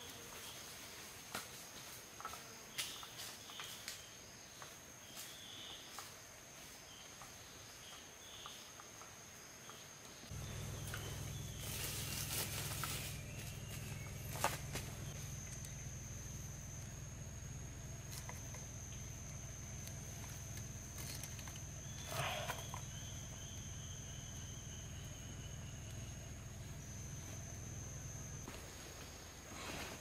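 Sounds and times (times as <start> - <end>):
insect high-pitched drone: 1.8 - 29.4
footsteps in leaf litter: 10.3 - 14.9
low steady rumble: 10.3 - 28.9.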